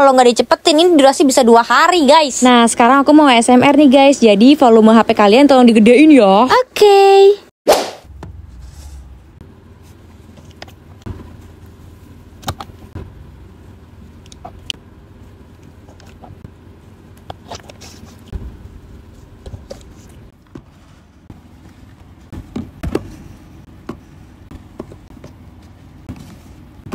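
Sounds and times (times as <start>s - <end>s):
low steady hum: 8.0s - 26.9s.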